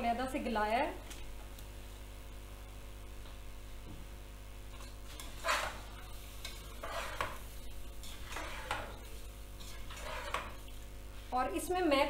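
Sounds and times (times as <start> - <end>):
spoon scraping in metal pot: 4.7 - 10.9.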